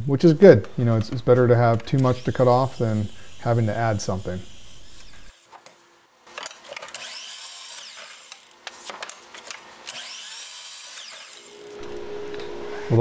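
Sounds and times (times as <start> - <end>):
miter saw cutting wood: 1.8 - 5.6, 6.8 - 8.5, 9.9 - 13.0.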